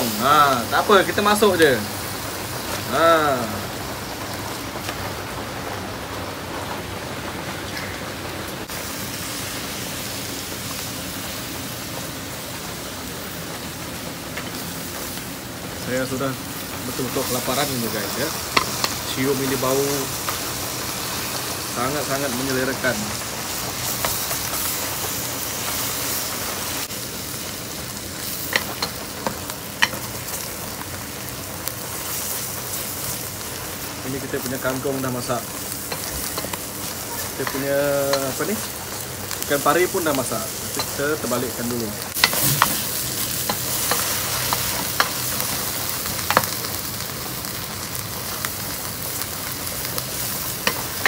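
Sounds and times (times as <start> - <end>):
heavy rain falling: 0.0 - 18.4
food sizzling in a pan: 0.0 - 51.0.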